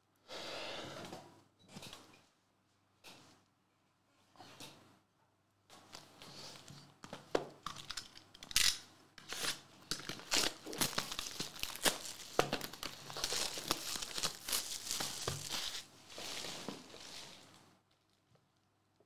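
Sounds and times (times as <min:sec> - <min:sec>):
plastic wrap crinkling and tearing: 0:07.7 - 0:18.3.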